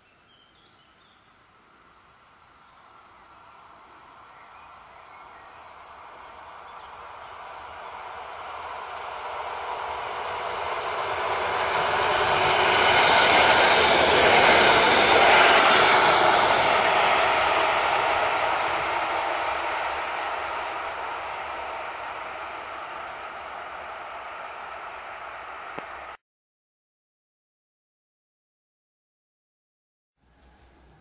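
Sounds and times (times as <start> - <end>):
train wheels rushing on rails: 3.0 - 26.2.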